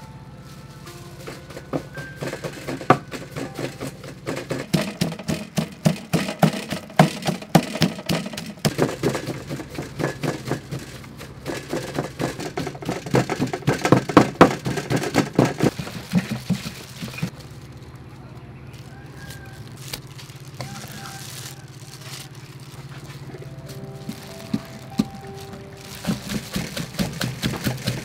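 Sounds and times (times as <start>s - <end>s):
wooden pestle pounding in mortar: 1.3s - 17.3s, 23.8s - 28.0s.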